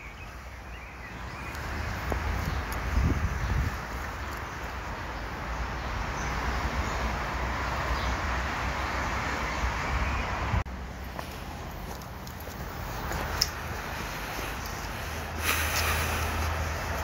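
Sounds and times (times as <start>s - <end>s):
rushing hiss: 13.9s - 16.8s.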